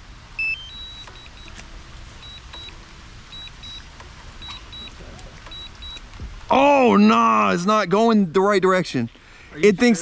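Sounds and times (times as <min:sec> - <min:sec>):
remote controller beeping: 0:00.4 - 0:07.5.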